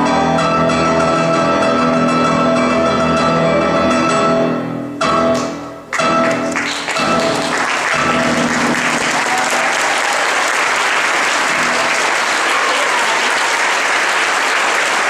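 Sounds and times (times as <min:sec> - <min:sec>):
audience applauding: 0:06.2 - 0:15.0.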